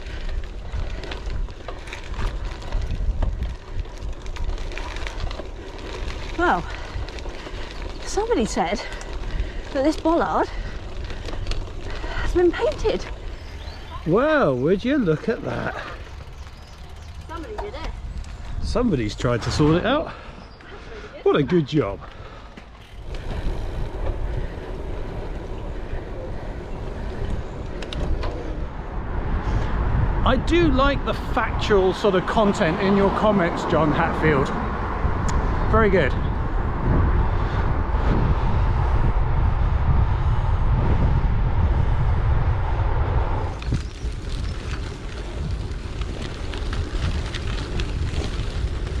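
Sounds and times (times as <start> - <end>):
bike ticks and crackles: 0.0 - 49.0
wind buffeting microphone: 0.0 - 49.0.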